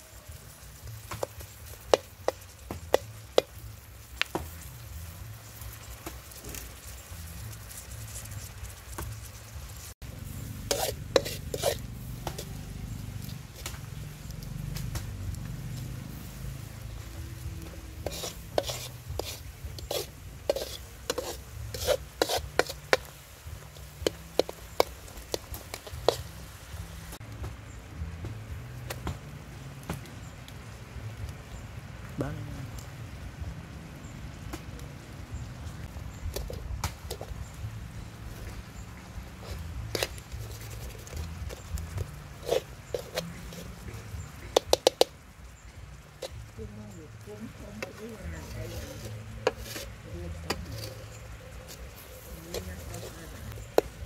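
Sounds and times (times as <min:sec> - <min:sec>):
oil sizzling: 0:00.0 - 0:27.3, 0:32.9 - 0:54.0
metal ladle scraping a wok: 0:09.3 - 0:14.4, 0:15.7 - 0:26.6, 0:38.3 - 0:45.1, 0:47.8 - 0:54.0
sauce bubbling: 0:35.6 - 0:54.0.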